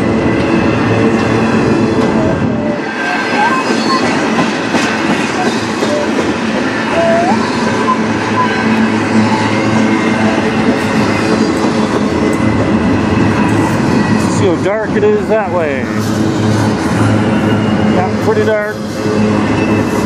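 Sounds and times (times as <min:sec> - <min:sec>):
train wheels rumbling on rails: 0:00.0 - 0:20.0
wheel squeal: 0:02.8 - 0:10.5, 0:16.7 - 0:20.0.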